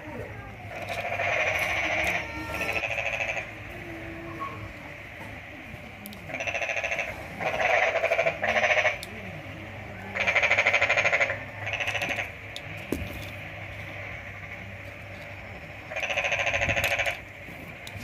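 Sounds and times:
animal calling in pulsing bursts: 0.7 - 4.8, 6.3 - 9.0, 15.8 - 17.2.

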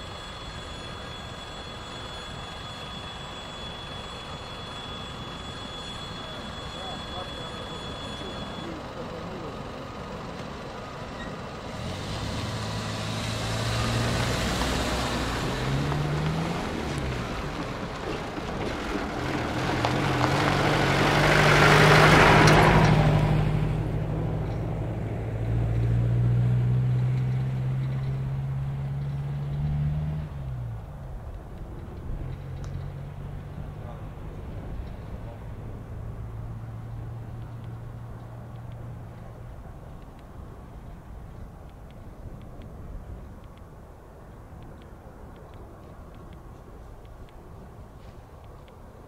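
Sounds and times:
vehicle engine passing by: 6.0 - 40.9.

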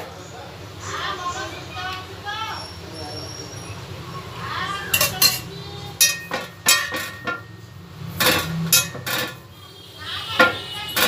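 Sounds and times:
steel plate knocking and ringing: 6.0 - 7.6, 8.2 - 9.4.

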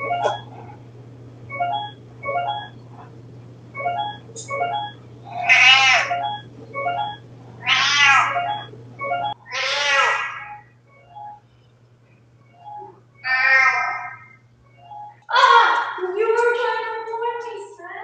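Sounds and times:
oven timer beeping a tune: 0.0 - 0.6, 1.4 - 2.8, 3.7 - 9.5, 10.4 - 11.7, 12.4 - 13.4, 14.2 - 15.3
low hum: 0.0 - 9.5
cat meowing loudly: 5.4 - 6.1, 7.6 - 8.4, 9.5 - 10.5, 13.3 - 14.1.

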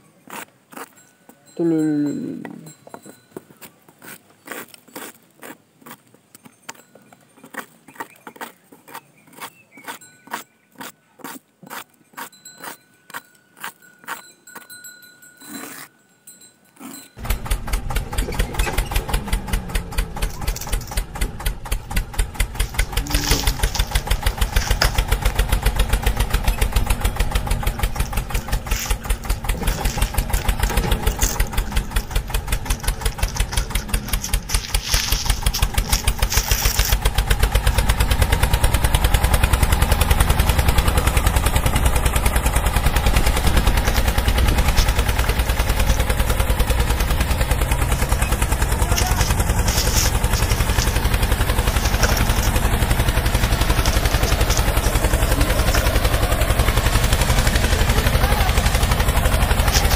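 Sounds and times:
toy tractor engine pulsing: 16.8 - 59.9
toy parts clicking and tapping: 22.6 - 25.4, 28.0 - 37.0.

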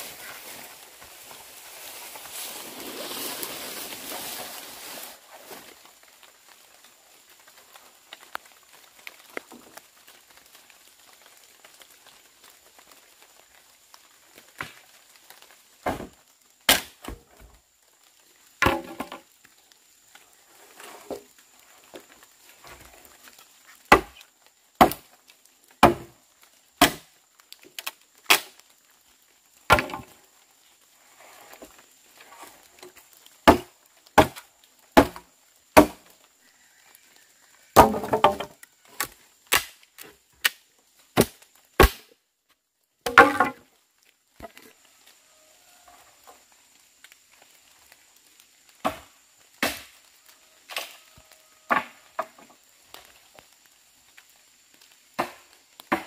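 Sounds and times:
axe chopping firewood: 15.8 - 17.2, 23.9 - 24.2, 24.8 - 25.1, 25.8 - 26.1, 26.8 - 27.1, 29.7 - 30.1, 33.4 - 34.4, 35.0 - 35.2, 35.8 - 36.1, 37.8 - 40.6, 41.2 - 42.1, 43.0 - 43.6, 55.2 - 56.0
rough wood crashes: 15.8 - 17.6, 18.6 - 19.3, 23.9 - 24.2, 25.8 - 26.2, 26.8 - 27.1, 29.7 - 30.2, 33.4 - 36.1, 37.7 - 39.8, 41.1 - 42.1, 43.0 - 43.7.

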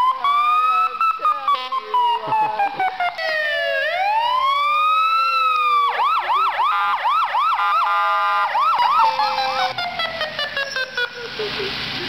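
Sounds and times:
lower falling siren tone: 0.0 - 10.3
fire truck siren wailing and yelping: 0.0 - 12.0.

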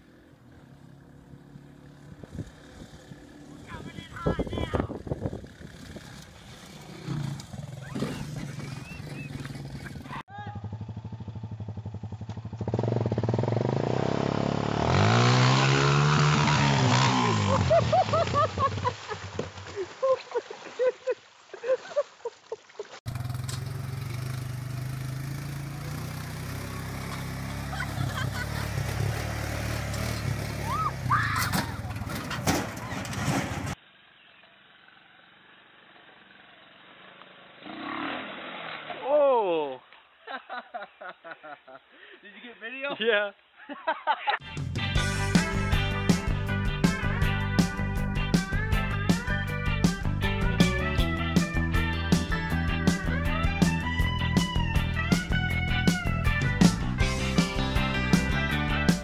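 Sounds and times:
atv engine popping: 1.8 - 19.8, 23.1 - 33.8.

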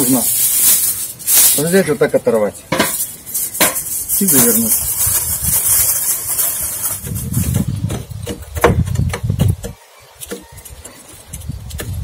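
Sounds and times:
aluminium foil crinkling: 0.0 - 7.7.

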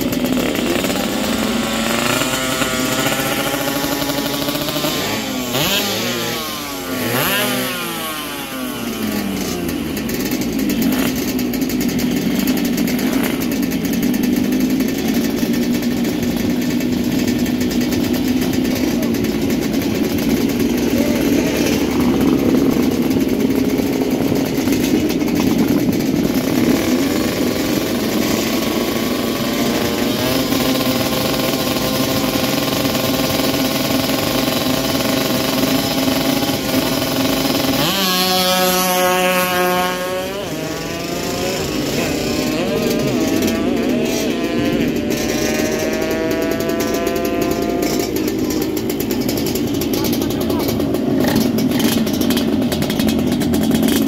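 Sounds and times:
two-stroke engines revving: 0.0 - 54.0.

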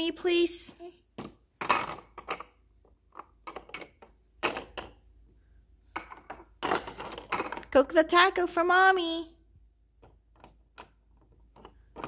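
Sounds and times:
plastic toy food clacking: 1.2 - 5.0.

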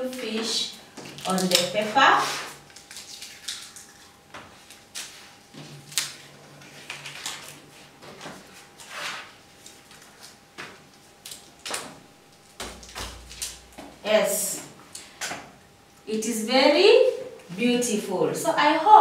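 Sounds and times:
paper rustling: 0.1 - 13.9.

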